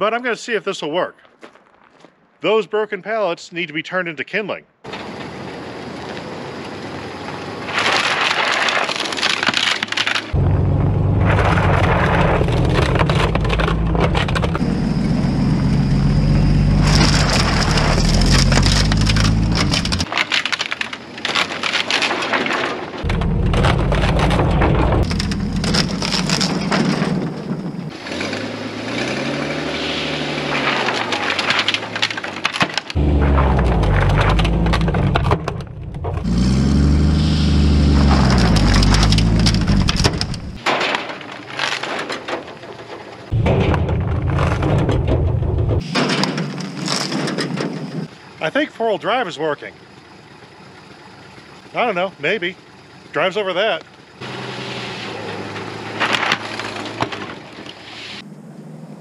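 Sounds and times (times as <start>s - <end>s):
wood cracking and splintering: 7.7s - 14.6s, 15.8s - 48.1s, 55.5s - 57.8s
truck engine revving: 10.4s - 20.1s, 23.0s - 32.1s, 32.9s - 40.6s.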